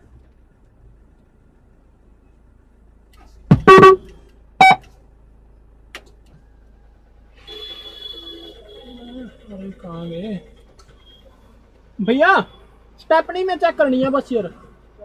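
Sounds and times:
car horn short toots: 0:03.5 - 0:04.9, 0:07.4 - 0:09.2.

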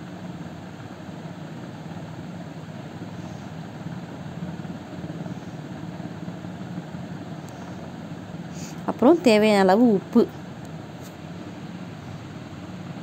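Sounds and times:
low mechanical hum: 0:00.0 - 0:13.0
faint hiss: 0:00.1 - 0:09.4.

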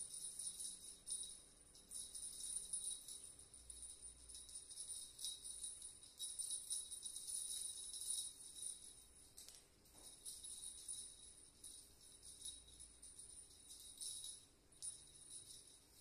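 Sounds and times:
small bell jingling: 0:00.0 - 0:16.0.

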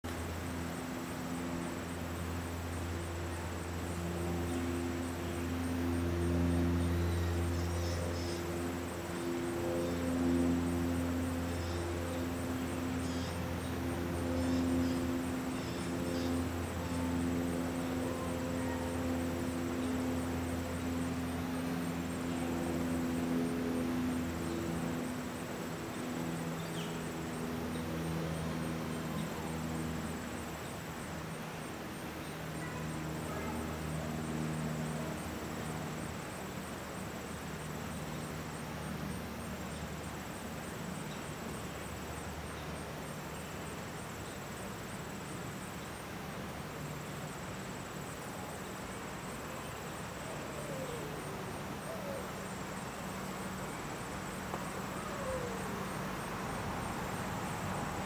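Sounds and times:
low droning hum: 0:00.0 - 0:44.8
outdoor background hiss: 0:00.0 - 0:58.0
faint high steady tone: 0:00.1 - 0:58.0.

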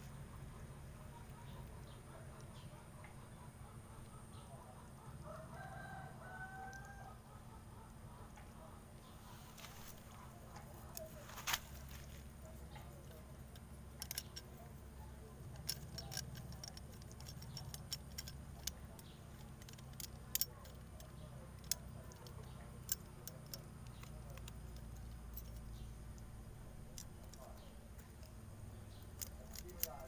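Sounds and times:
scissor blade scraping bark: 0:14.0 - 0:26.2.

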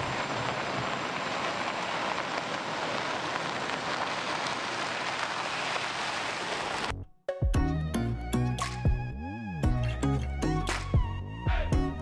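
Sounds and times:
tyres rolling on loose dirt: 0:00.0 - 0:06.9.

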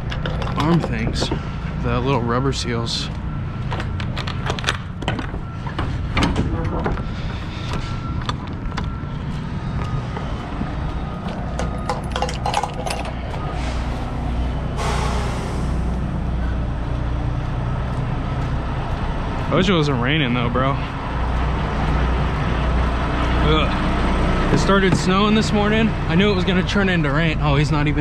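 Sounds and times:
metal trailer doors clanking: 0:00.0 - 0:02.0, 0:11.5 - 0:13.9
diesel truck idling: 0:00.0 - 0:28.0
short burst of hissing: 0:14.8 - 0:15.8.

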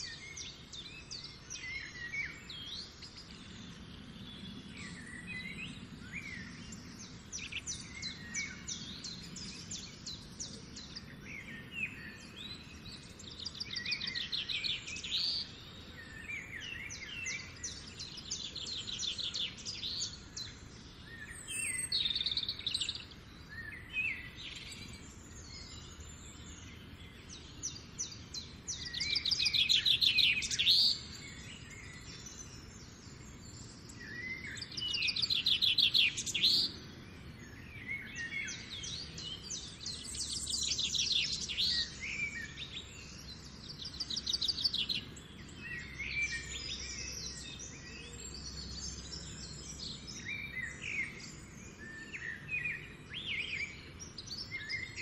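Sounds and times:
outdoor background noise: 0:00.0 - 0:55.0
songbirds trilling: 0:00.0 - 0:55.0.

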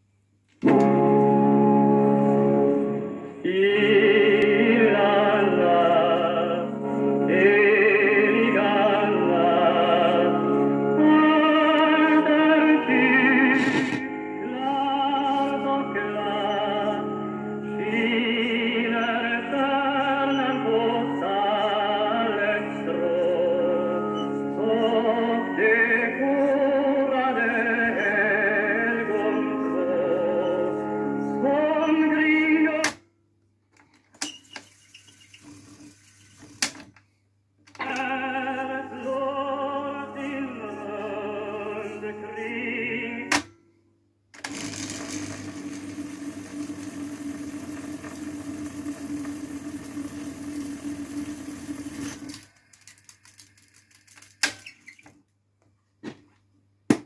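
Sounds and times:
instrumental accompaniment: 0:00.6 - 0:03.5
opera singing with vibrato: 0:03.4 - 0:33.0, 0:37.8 - 0:43.4.

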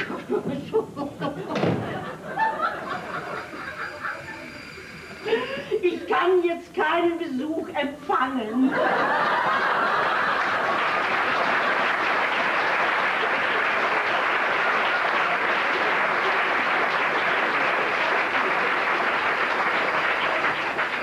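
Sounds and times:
audience applauding: 0:09.0 - 0:21.0.

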